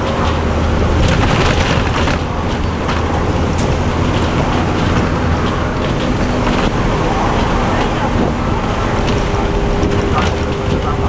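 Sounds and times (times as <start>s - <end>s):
bus diesel engine running: 0.0s - 11.0s
wind noise: 0.0s - 11.0s
short rattles: 0.2s - 6.8s.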